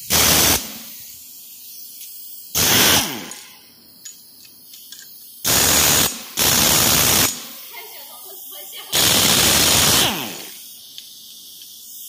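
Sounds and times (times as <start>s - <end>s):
short bursts of hissing: 0.0s - 12.0s.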